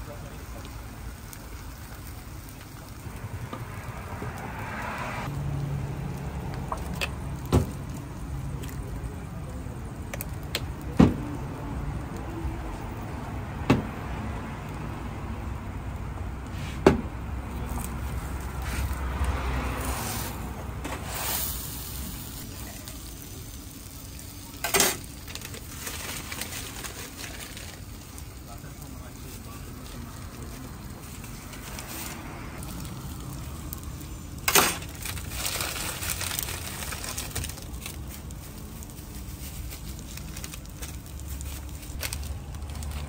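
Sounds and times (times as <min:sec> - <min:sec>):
food sizzling on hot plate: 0:17.8 - 0:31.9, 0:32.6 - 0:42.8.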